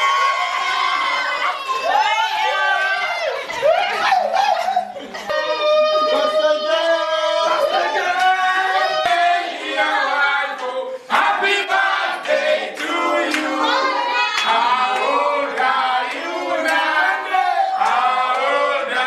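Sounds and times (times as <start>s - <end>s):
group of people singing: 5.3s - 19.0s.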